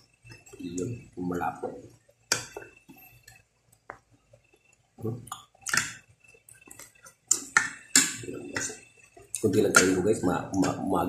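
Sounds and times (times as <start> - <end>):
eating sounds: 5.0 - 10.9.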